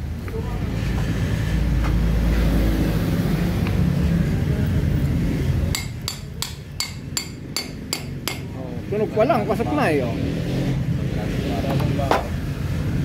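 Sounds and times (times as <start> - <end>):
hammer tapping metal: 5.7 - 8.5.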